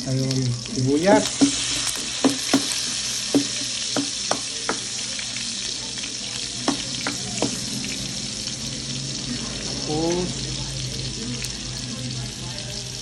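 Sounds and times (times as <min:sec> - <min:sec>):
food sizzling in hot oil: 0:00.0 - 0:13.0
spatula knocking against pan: 0:01.3 - 0:04.9, 0:06.6 - 0:07.6.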